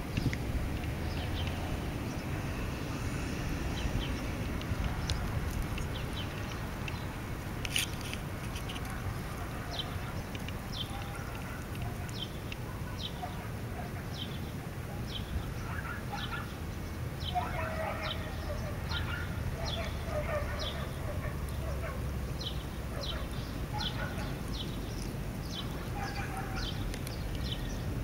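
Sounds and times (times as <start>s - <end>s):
steady low rumble: 0.0s - 12.8s.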